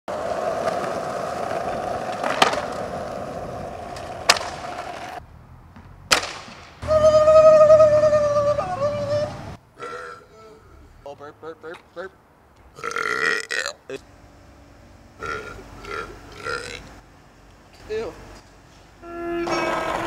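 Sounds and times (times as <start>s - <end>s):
skateboard clacks: 0.1s - 5.2s, 6.1s - 6.7s
skateboard wheels rolling on concrete: 0.1s - 9.6s, 18.5s - 20.0s
high held tone: 19.0s - 20.0s.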